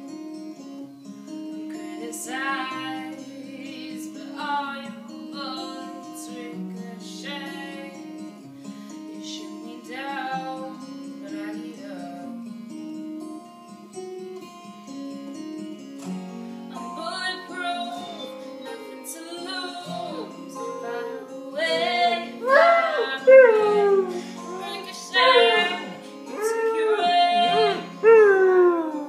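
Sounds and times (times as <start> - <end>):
plucked guitar: 0.0 - 29.0
girl singing: 1.8 - 8.1, 9.2 - 12.3, 16.8 - 29.0.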